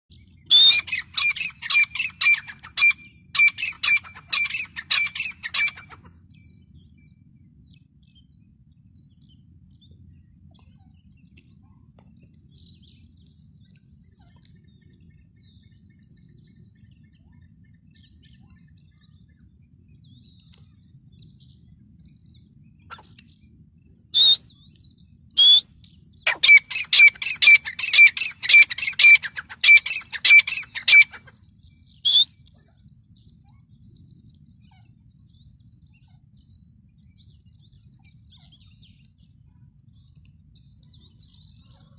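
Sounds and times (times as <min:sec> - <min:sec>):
faint low background rumble: 0:00.1 - 0:41.9
francolin calling in rapid sharp notes: 0:00.5 - 0:06.0, 0:26.3 - 0:31.3.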